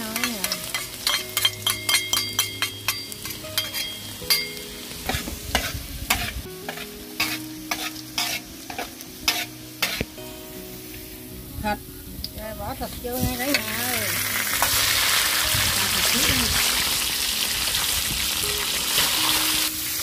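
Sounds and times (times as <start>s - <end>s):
garlic sizzling in hot oil: 0.0s - 20.0s
metal spatula scraping pan: 0.2s - 4.4s, 5.1s - 10.0s.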